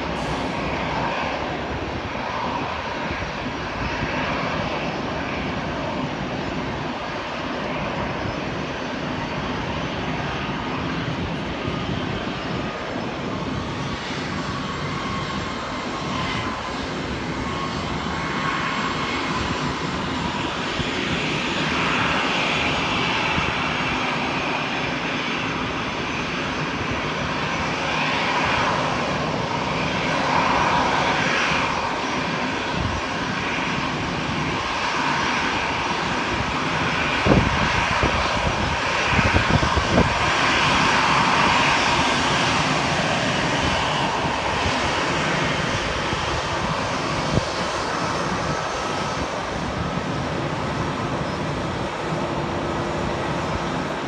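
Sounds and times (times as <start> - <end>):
jet engines running: 0.0 - 54.0
wind buffeting microphone: 0.0 - 54.0.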